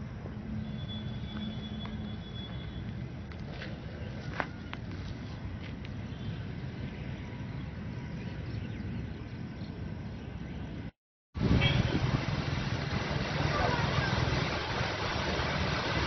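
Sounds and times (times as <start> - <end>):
steady outdoor rumble: 0.0 - 16.0
water spilling over a weir: 11.4 - 16.0.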